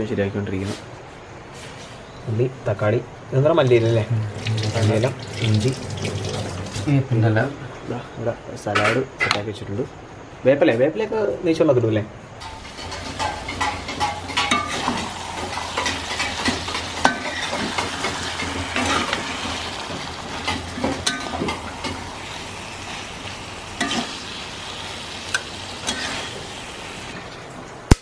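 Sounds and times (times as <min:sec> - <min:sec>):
spoon scraping a pan: 0:12.4 - 0:24.4, 0:25.3 - 0:27.2
food sizzling in a pan: 0:12.4 - 0:27.2.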